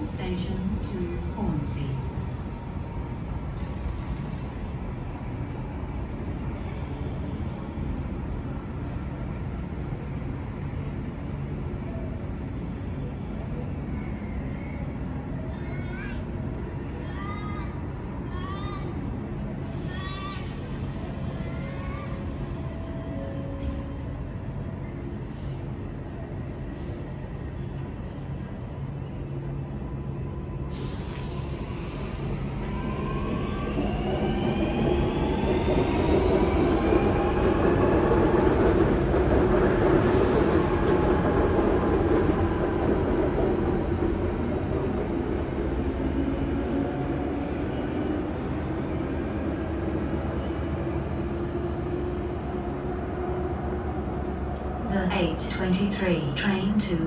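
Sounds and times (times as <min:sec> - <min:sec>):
electric train rumbling: 0:00.0 - 0:57.0.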